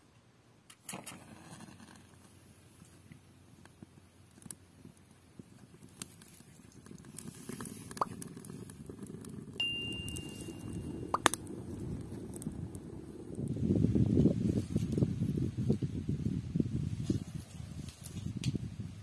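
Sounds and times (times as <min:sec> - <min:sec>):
twigs crackling and popping: 0:00.7 - 0:15.8, 0:17.0 - 0:18.6
low rush of flames: 0:00.7 - 0:19.0
thin steady whistle: 0:09.6 - 0:11.2.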